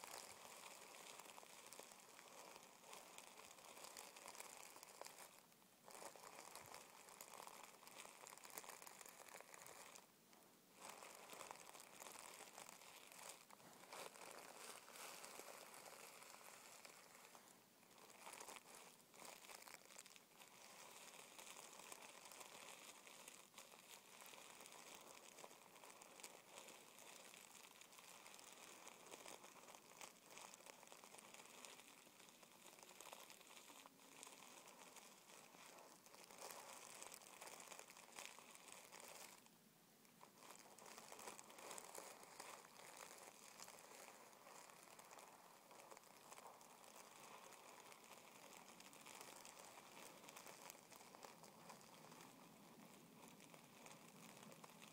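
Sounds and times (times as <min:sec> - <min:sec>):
fingertips rubbing tissue paper: 0:00.0 - 0:10.0, 0:10.8 - 0:39.5, 0:40.3 - 0:54.0.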